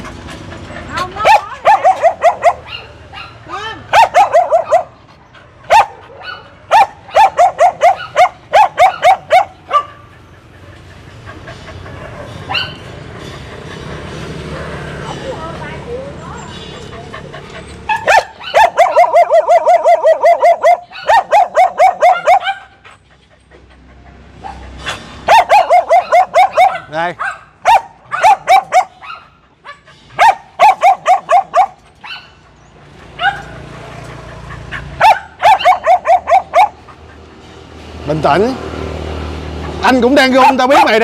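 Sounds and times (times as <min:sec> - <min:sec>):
dog barking rapidly: 0:01.0 - 0:05.0, 0:05.7 - 0:10.1, 0:17.8 - 0:22.8, 0:24.4 - 0:32.4, 0:33.1 - 0:33.6, 0:34.8 - 0:37.0, 0:40.2 - 0:41.0.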